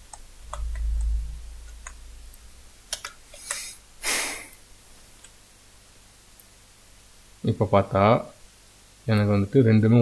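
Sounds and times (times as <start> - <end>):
low rumble: 0.0 - 4.0
keyboard and mouse clicks: 2.9 - 3.7.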